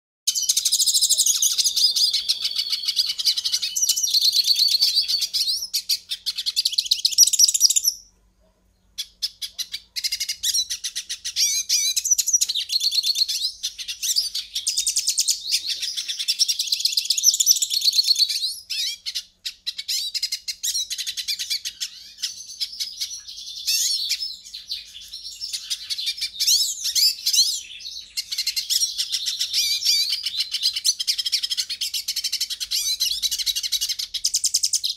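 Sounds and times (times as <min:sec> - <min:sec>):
finch singing twittering song: 0:00.3 - 0:08.1, 0:08.8 - 0:34.9.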